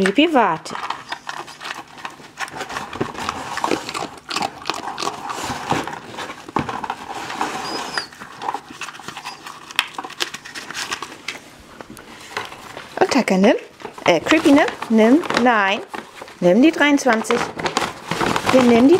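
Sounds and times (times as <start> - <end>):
dog chewing a treat: 0.8 - 12.8.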